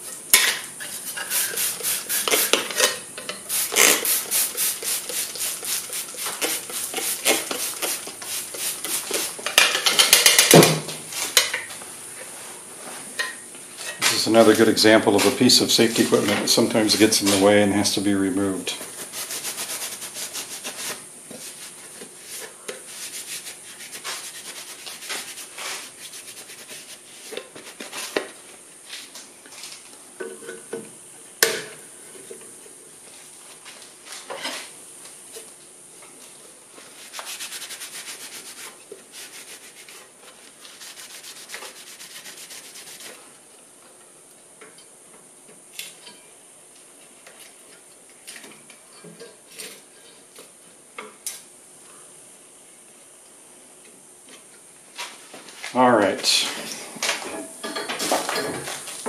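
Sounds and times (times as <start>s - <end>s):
cloth rubbing on plastic: 18.8s - 27.9s, 36.9s - 40.0s, 40.6s - 43.2s.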